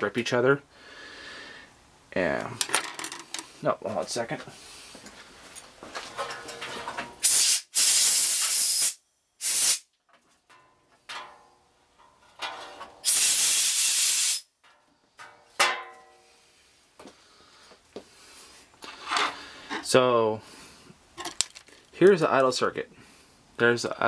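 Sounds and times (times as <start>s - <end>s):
pressurized nozzle hissing blasts: 7.2s - 9.8s, 13.0s - 14.5s.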